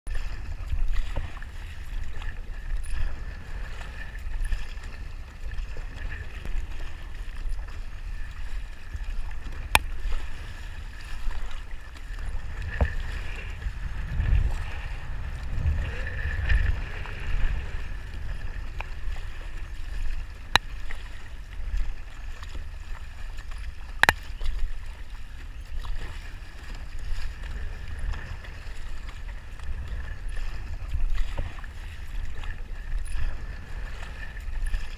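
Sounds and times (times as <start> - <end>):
low wind rumble: 0.1 - 20.5
paddle splashing water: 0.1 - 34.9.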